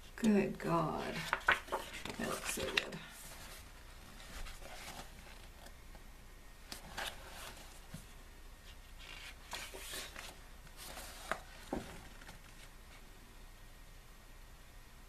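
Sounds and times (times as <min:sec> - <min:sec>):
paper page rustling: 0:00.9 - 0:05.7, 0:06.7 - 0:13.0.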